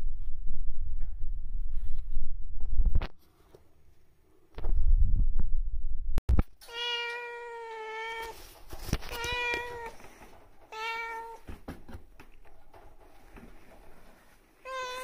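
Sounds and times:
cat meowing: 6.6 - 8.4, 9.0 - 10.0, 10.7 - 11.4, 14.6 - 15.0.

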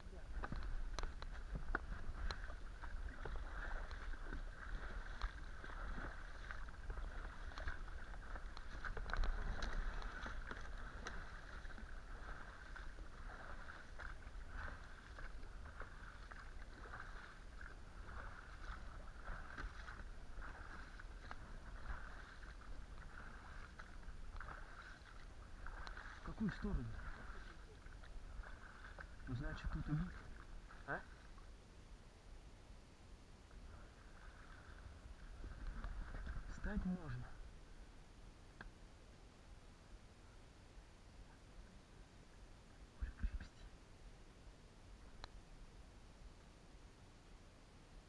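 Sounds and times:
water washing along hull: 0.1 - 31.4
oars splashing in water: 0.3 - 31.5, 33.6 - 37.4.

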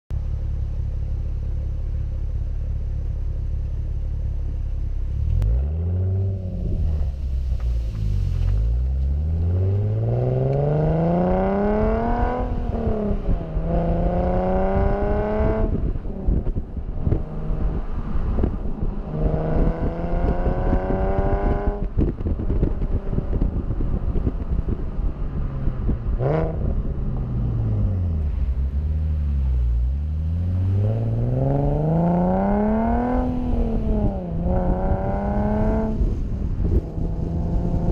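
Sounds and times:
car exhaust revving: 0.2 - 37.9
wind buffeting microphone: 9.3 - 28.6, 30.7 - 37.9.

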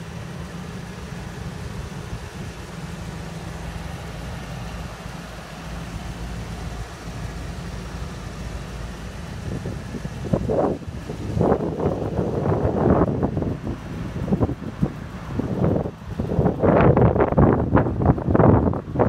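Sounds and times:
truck engine idling: 0.0 - 19.0
wind noise on microphone: 9.0 - 19.0.

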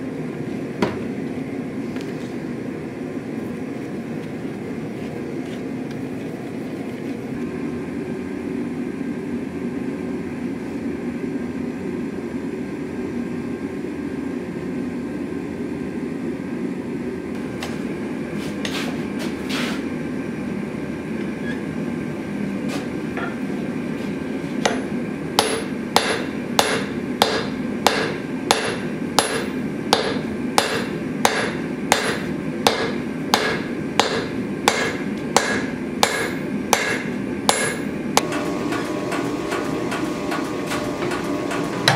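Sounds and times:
hammer striking steel on anvil: 24.6 - 41.9.

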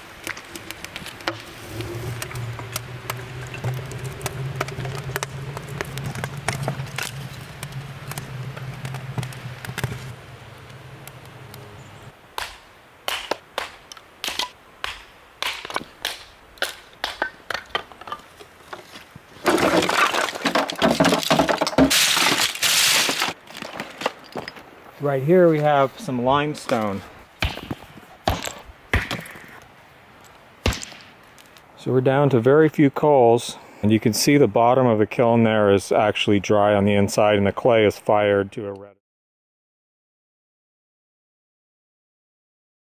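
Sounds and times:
kindling being split: 0.0 - 10.2, 18.1 - 24.7
fire crackling: 0.0 - 32.2
steady low hum: 0.9 - 12.2.

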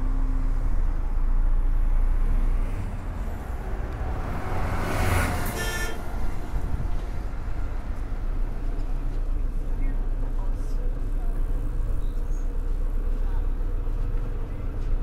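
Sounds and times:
passing traffic: 0.0 - 15.0
vehicle engine and road rumble: 0.0 - 15.0.

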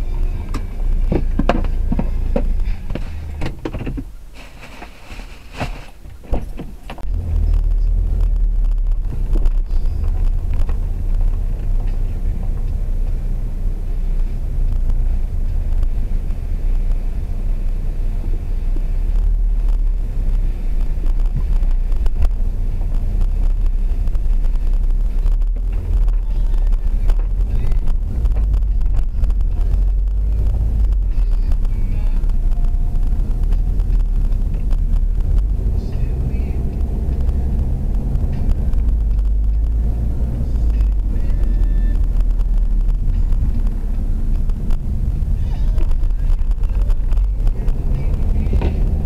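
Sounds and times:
car interior low rumble: 0.0 - 49.0.

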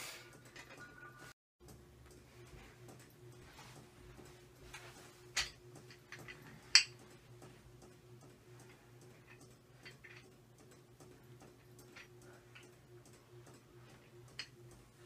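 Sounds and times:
steady low hum: 0.0 - 15.0
faint scattered ticking: 5.4 - 15.0.

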